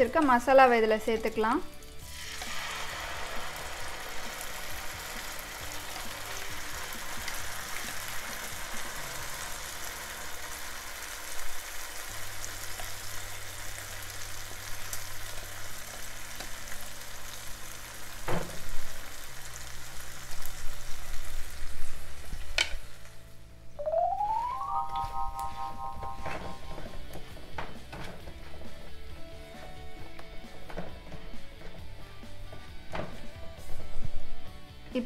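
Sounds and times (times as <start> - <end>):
paste sizzling in hot oil: 1.8 - 22.6.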